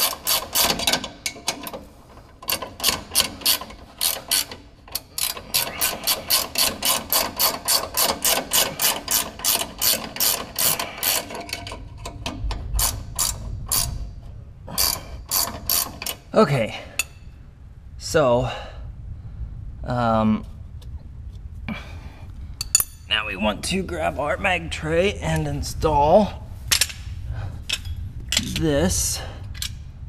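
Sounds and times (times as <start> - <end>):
ratchet wrench clicking: 0.0 - 1.7, 2.5 - 12.1, 12.8 - 14.0, 14.7 - 16.2.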